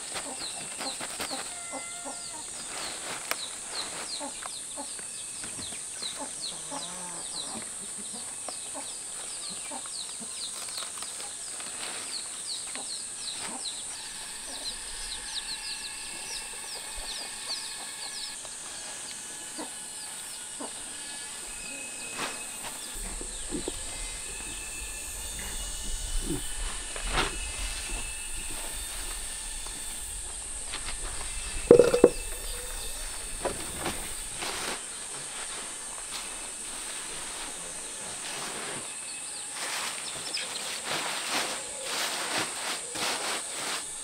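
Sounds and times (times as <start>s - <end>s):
rustling leaves and soft taps: 0.0s - 1.6s, 2.3s - 6.3s, 8.4s - 13.6s
high insect drone: 0.0s - 44.0s.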